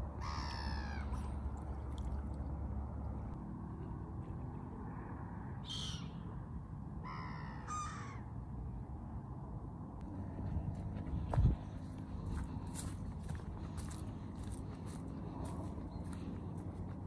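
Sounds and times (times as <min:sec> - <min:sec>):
bird calls: 0:05.6 - 0:06.2
steady low rumble: 0:10.0 - 0:17.0.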